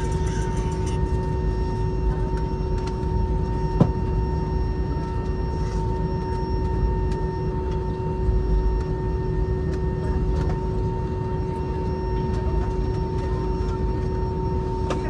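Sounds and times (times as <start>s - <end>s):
jet engines whining: 0.0s - 15.0s
low cabin rumble: 0.0s - 15.0s.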